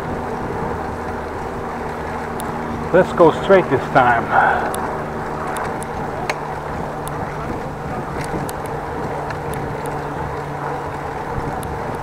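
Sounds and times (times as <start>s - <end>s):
low hum: 0.0s - 12.0s
wind rushing on microphone: 0.0s - 12.0s
faint ticks: 2.4s - 2.6s.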